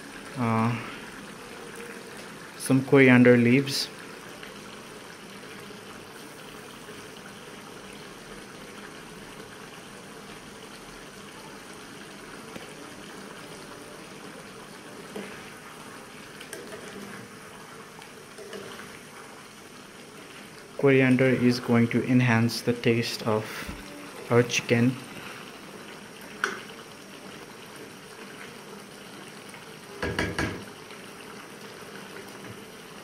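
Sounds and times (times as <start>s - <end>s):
curry bubbling in a pan: 0.0s - 33.0s
ladle stirring with knocks and scrapes: 15.0s - 17.4s, 18.1s - 19.2s.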